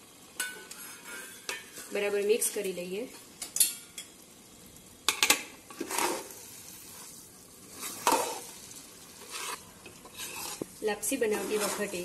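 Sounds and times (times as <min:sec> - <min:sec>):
ghee frying quietly: 0:00.0 - 0:12.0
metal spatula scraping a metal pan: 0:00.4 - 0:02.0, 0:05.7 - 0:06.4, 0:09.2 - 0:12.0.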